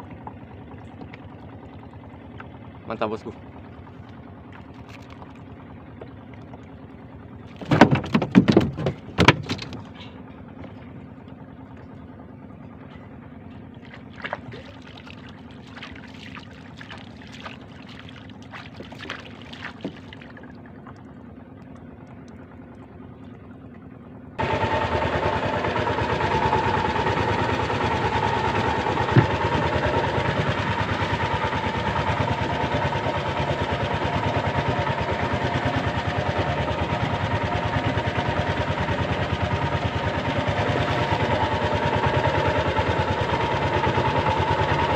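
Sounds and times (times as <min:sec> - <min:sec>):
small boat engine running: 0:00.0 - 0:44.9
water lapping around boat: 0:00.0 - 0:44.9
knocks on boat hull: 0:07.6 - 0:09.8, 0:29.1 - 0:29.5.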